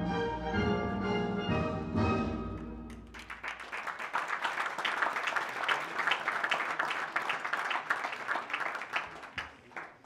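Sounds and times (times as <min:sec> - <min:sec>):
audience applauding: 0:02.9 - 0:10.0.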